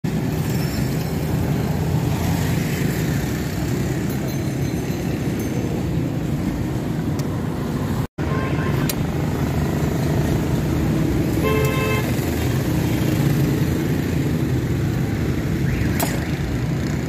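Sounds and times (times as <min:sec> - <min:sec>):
street noise: 0:00.0 - 0:17.0
traffic rumble: 0:00.0 - 0:17.0.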